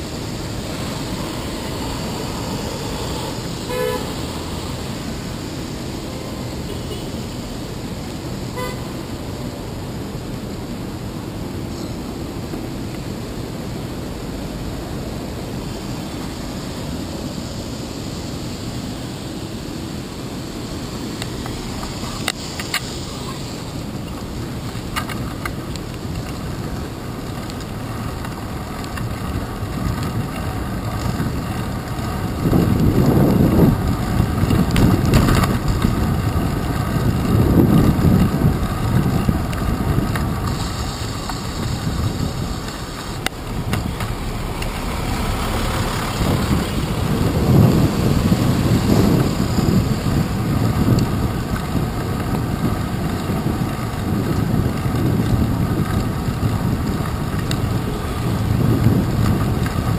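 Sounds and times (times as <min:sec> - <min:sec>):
vehicles on wet streets: 0:00.0 - 0:59.9
wind noise on microphone: 0:00.0 - 0:59.9.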